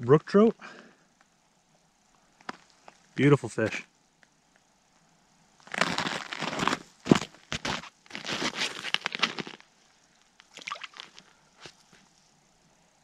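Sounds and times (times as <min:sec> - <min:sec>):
boots crunching on snow: 0:05.7 - 0:09.6.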